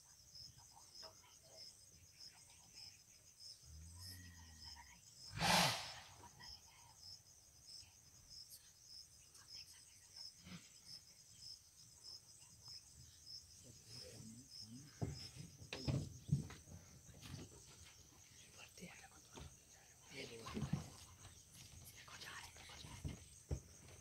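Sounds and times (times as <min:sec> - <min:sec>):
cricket chirping: 0:00.0 - 0:24.0.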